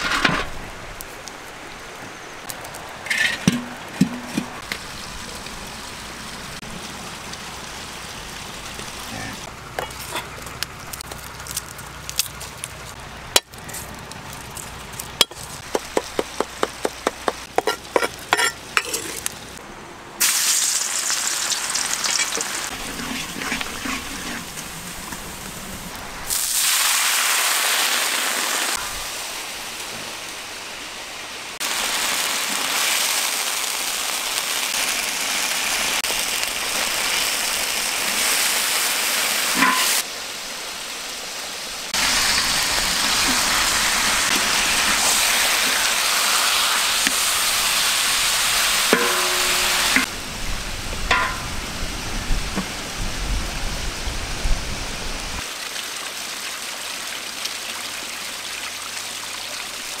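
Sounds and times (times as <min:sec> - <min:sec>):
meat sizzling in a wok: 0:20.2 - 0:29.7, 0:31.6 - 0:52.1.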